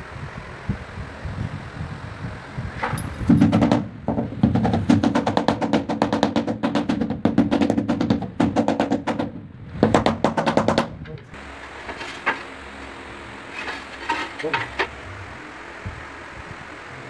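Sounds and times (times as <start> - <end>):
rubber mallet tapping tile: 3.3 - 10.9.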